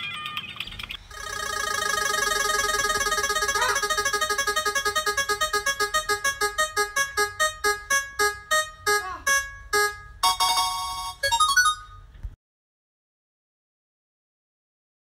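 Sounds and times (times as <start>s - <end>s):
prize wheel keyboard notes: 0.0s - 12.2s
held keyboard chord: 1.1s - 12.0s.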